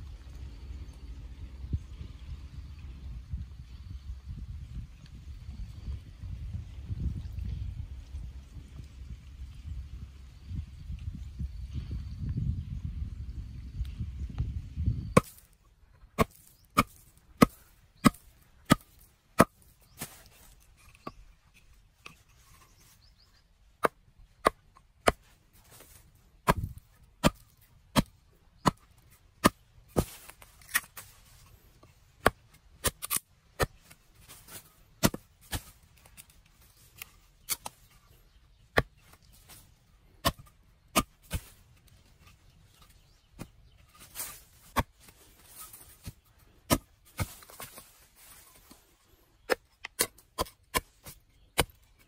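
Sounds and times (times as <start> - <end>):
wood being chopped: 15.2 - 21.2, 23.8 - 31.1, 32.2 - 37.8, 38.7 - 39.6, 40.2 - 47.9, 49.4 - 52.0.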